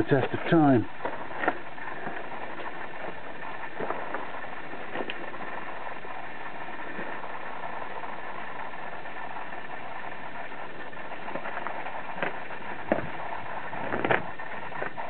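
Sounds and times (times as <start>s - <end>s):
steady background hum: 0.0s - 15.0s
footsteps on gravel: 12.2s - 13.2s.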